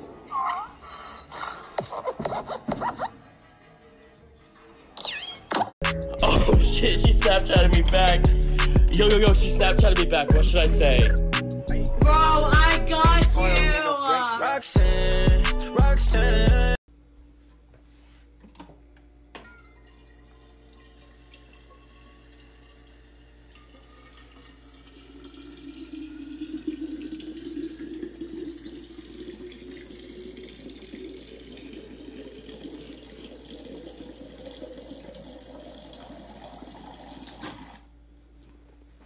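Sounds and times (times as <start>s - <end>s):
water pouring into bottle: 19.9s - 37.9s.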